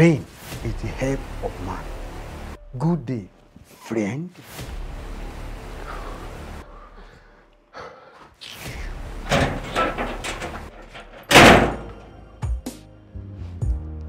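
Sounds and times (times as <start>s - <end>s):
door slamming shut: 9.3s - 12.0s.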